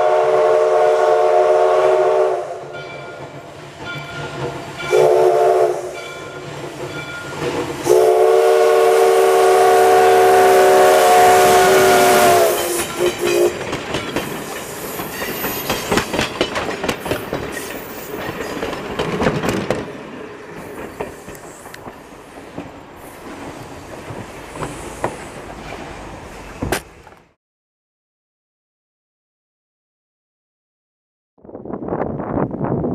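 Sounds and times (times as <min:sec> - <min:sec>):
steam locomotive chime whistle: 0:00.0 - 0:03.2, 0:03.9 - 0:13.6
train wheels clattering over rail joints: 0:06.0 - 0:07.9, 0:11.8 - 0:27.3.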